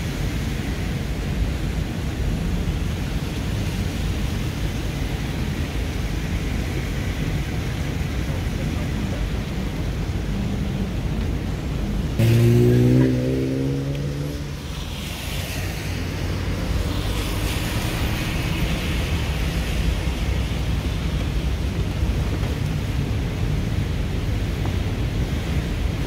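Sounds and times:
car engine and tyres on wet road: 0:00.0 - 0:26.0
loud low tone: 0:12.2 - 0:14.4.

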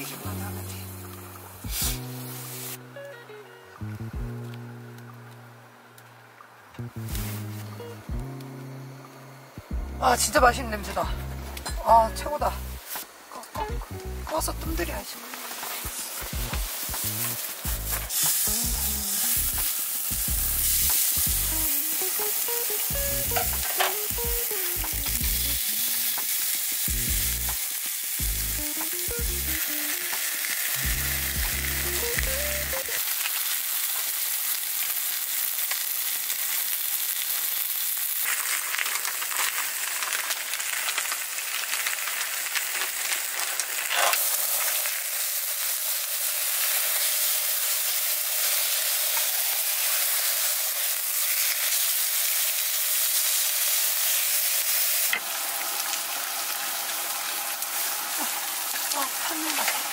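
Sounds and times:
food sizzling in a pan: 0:00.0 - 0:59.9
music with bass line: 0:03.8 - 0:05.5, 0:06.8 - 0:08.8, 0:09.6 - 0:12.8, 0:13.6 - 0:15.0, 0:16.2 - 0:21.8, 0:22.9 - 0:25.6, 0:26.9 - 0:27.6, 0:28.2 - 0:29.8, 0:30.8 - 0:33.0.

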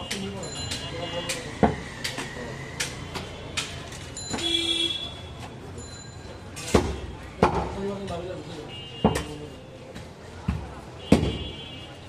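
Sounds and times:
sharp knock: 0:11.1 - 0:11.5.

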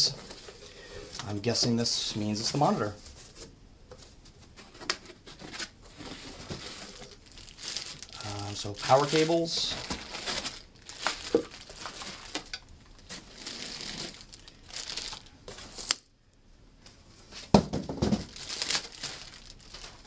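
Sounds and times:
plastic bags crinkling: 0:05.4 - 0:16.0, 0:17.9 - 0:20.0
knocks on cardboard box: 0:17.5 - 0:18.3.

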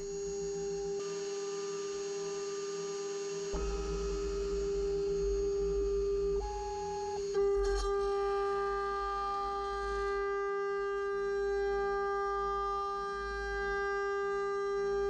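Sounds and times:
spindle whine: 0:03.4 - 0:15.0.

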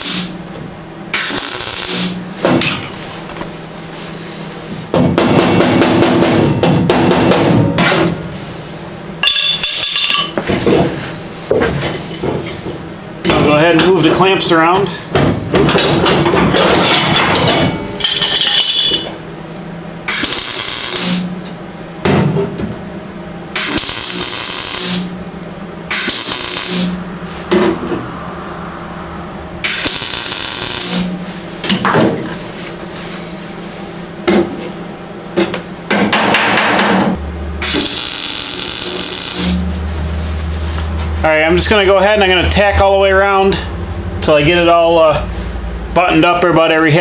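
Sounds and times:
welding arc crackle: 0:00.0 - 0:02.9, 0:20.0 - 0:21.4, 0:23.6 - 0:27.1, 0:29.6 - 0:31.3, 0:37.6 - 0:39.9.

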